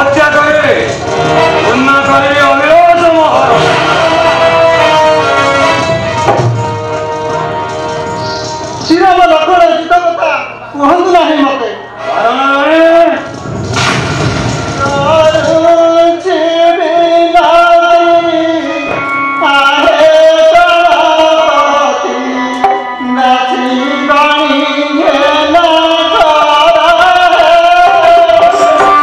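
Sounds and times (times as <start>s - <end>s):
person singing: 1.2s - 6.2s, 14.8s - 29.0s
noisy crash: 13.2s - 16.3s.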